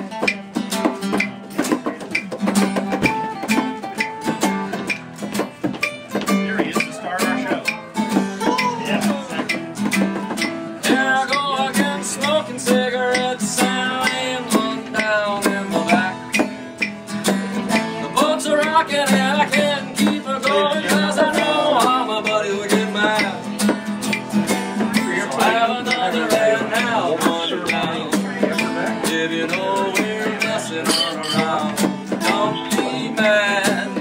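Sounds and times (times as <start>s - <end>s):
acoustic guitars strumming: 0.0s - 34.0s
person singing: 6.8s - 9.6s, 10.8s - 16.8s, 17.5s - 23.7s, 24.8s - 34.0s.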